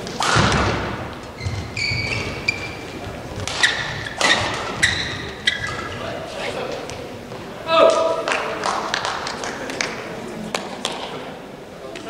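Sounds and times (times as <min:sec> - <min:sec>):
shoes squeaking on court mat: 0:01.2 - 0:06.7.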